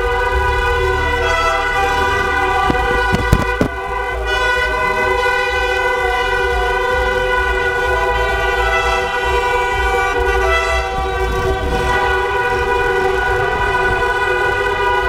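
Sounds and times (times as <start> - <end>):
car horns blaring: 0.0 - 15.0
sharp cracks: 2.6 - 3.8.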